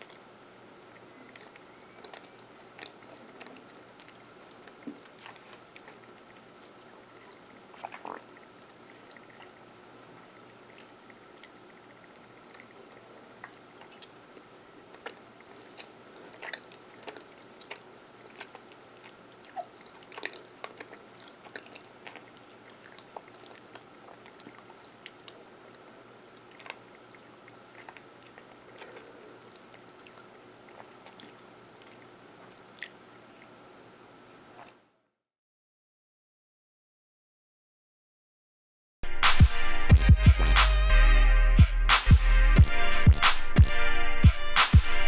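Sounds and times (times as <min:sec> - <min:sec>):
mouth chewing clicks and smacks: 0:00.0 - 0:10.0, 0:10.6 - 0:33.6
faint steady hum: 0:00.0 - 0:35.1.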